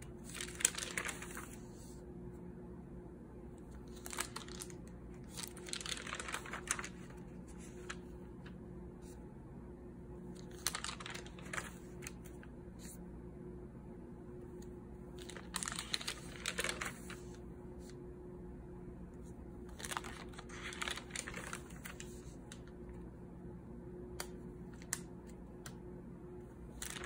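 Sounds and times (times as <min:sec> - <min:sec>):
faint steady hum: 0:00.0 - 0:27.0
notebook pages turning: 0:00.1 - 0:02.0, 0:03.6 - 0:08.6, 0:10.3 - 0:13.0, 0:15.2 - 0:17.4, 0:19.6 - 0:22.7, 0:26.7 - 0:27.0.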